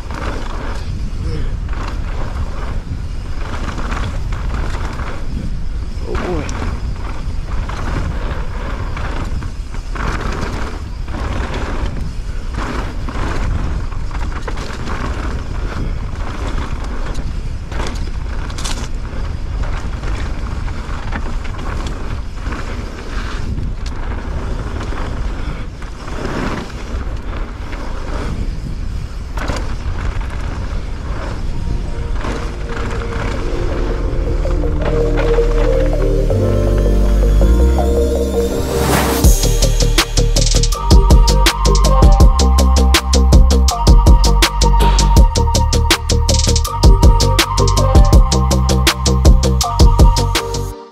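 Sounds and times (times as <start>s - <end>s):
bike knocking and rattling: 0.0s - 31.5s
wind rumble on microphone: 0.0s - 36.4s
music: 31.8s - 50.9s.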